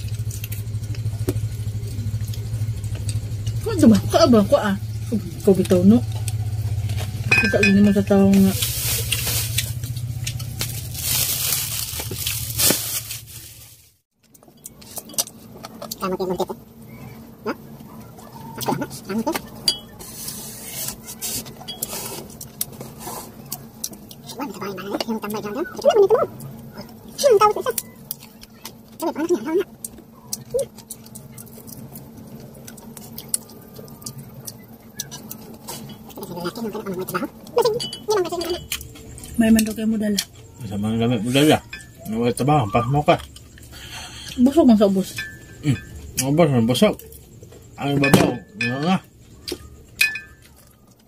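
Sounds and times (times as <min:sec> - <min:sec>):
steady low hum: 0:00.0 - 0:51.0
chewing and wet mouth clicks: 0:05.5 - 0:06.9, 0:29.6 - 0:36.4
plates clinking: 0:07.3 - 0:08.1, 0:47.9 - 0:49.0, 0:50.0 - 0:50.6.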